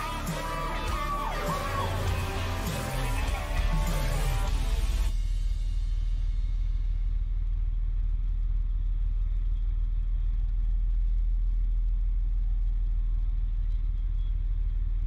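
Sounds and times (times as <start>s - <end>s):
diesel engine rumbling: 0.0s - 5.1s.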